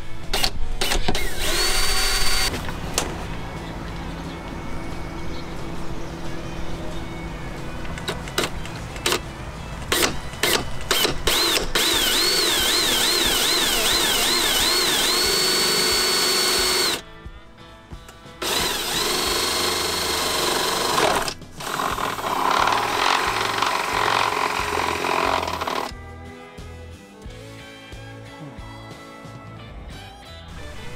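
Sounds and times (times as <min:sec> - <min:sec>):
cordless drill whining: 0:00.4 - 0:02.5, 0:09.9 - 0:17.0, 0:18.4 - 0:25.9.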